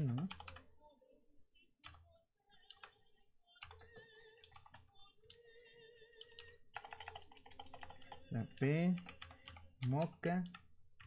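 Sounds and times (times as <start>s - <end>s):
typing on computer keyboard: 0.0s - 0.6s, 3.6s - 5.4s, 6.2s - 11.0s.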